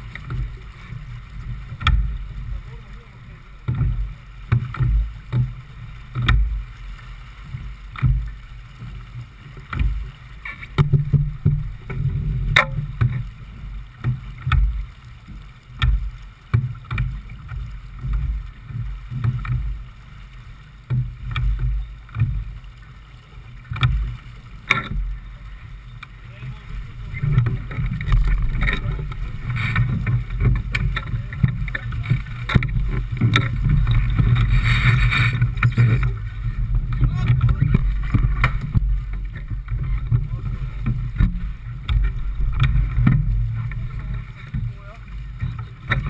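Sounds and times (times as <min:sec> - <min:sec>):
waves slapping the hull: 0:00.0 - 0:46.0
wind buffeting the microphone: 0:26.5 - 0:46.0.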